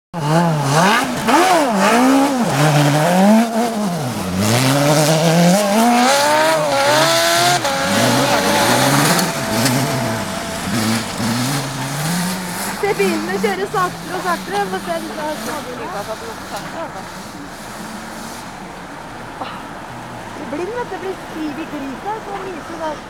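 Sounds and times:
rally car engine revving: 0.1 - 23.0.

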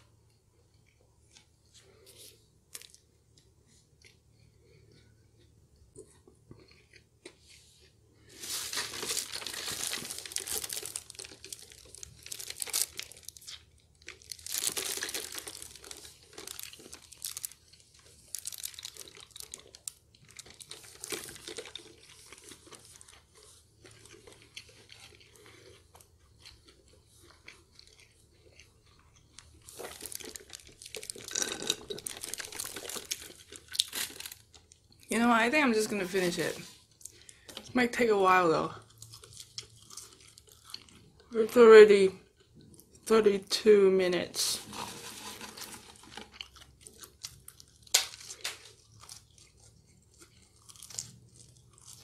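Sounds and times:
chewing fries: 0.0 - 35.6, 36.3 - 37.8, 38.4 - 41.6, 42.2 - 43.1, 44.7 - 52.0
paper crinkling: 8.3 - 23.1, 44.5 - 48.8.

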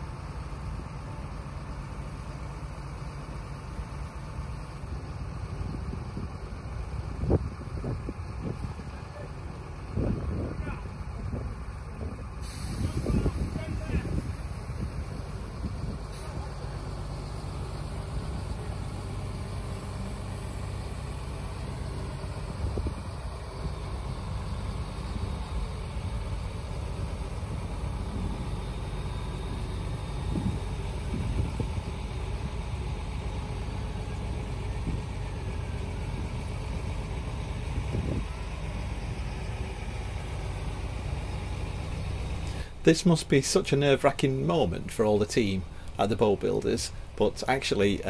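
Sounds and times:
crane diesel engine running: 0.0 - 48.0.

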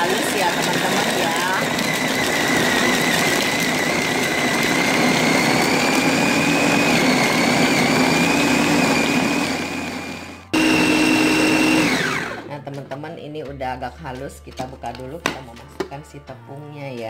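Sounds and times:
food processor motor whining: 0.0 - 12.5.

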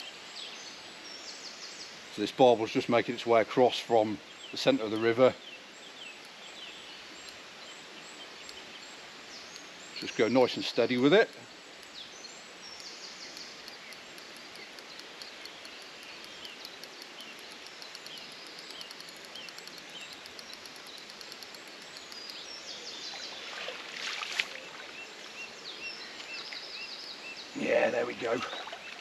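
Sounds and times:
songbirds chirping: 0.0 - 29.0
faint high ticks: 4.7 - 5.2, 6.0 - 7.8, 8.4 - 23.4
river water rushing: 23.2 - 25.0.

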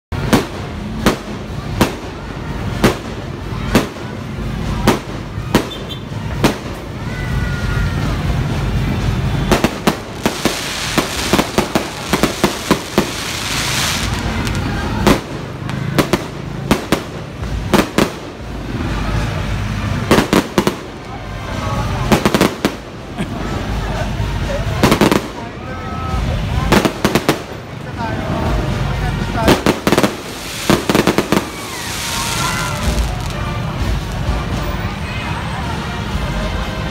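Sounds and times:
fireworks crackling: 0.1 - 36.7
fireworks bangs: 0.2 - 34.5.

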